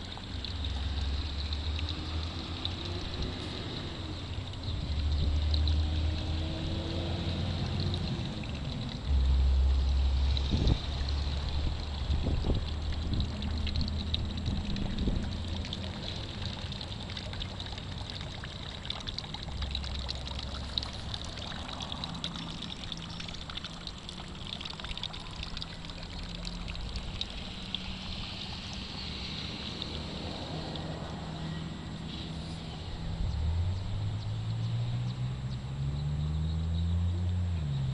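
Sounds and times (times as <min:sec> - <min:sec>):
garden fountain trickling: 0:00.0 - 0:37.9
wind buffeting microphone: 0:10.4 - 0:15.4.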